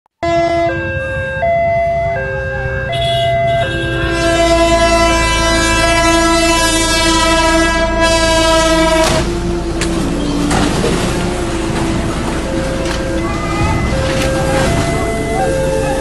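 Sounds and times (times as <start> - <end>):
train horn blast: 0.2 - 1.1, 2.6 - 10.4
two-tone crossing alarm: 0.2 - 10.4, 12.1 - 16.0
low train rumble: 0.2 - 16.0.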